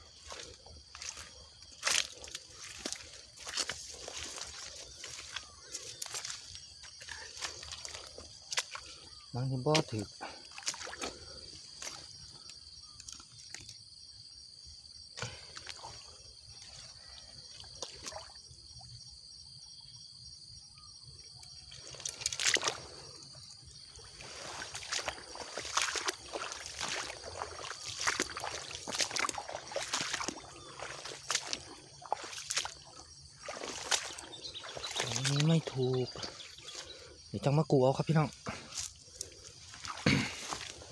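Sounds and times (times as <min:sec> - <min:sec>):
footsteps crunching through dry grass: 0:00.0 - 0:12.5, 0:21.8 - 0:37.3, 0:38.0 - 0:40.9.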